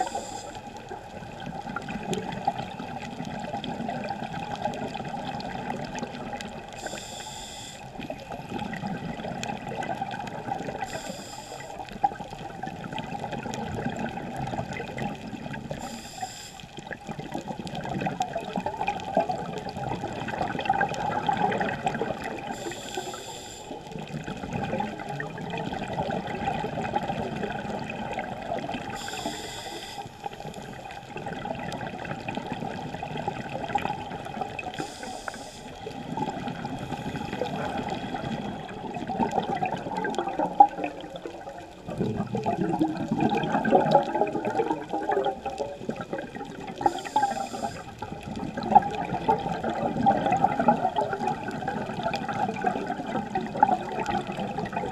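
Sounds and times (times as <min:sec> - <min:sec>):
regulator hissing inhalation: 0:00.0 - 0:00.7, 0:06.8 - 0:07.9, 0:10.8 - 0:11.8, 0:15.8 - 0:16.7, 0:22.5 - 0:23.9, 0:28.9 - 0:30.4, 0:34.7 - 0:35.8, 0:46.8 - 0:47.9
bubbling exhalation: 0:36.1 - 0:54.9.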